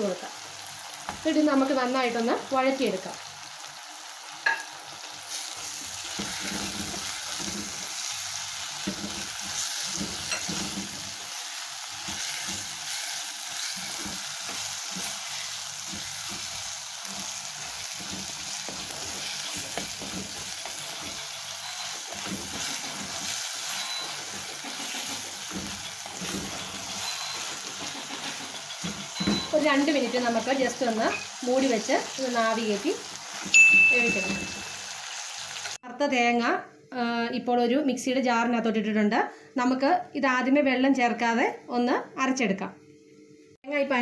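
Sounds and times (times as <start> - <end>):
food sizzling in hot oil: 0.0 - 35.8
spatula stirring in pan: 5.3 - 32.2.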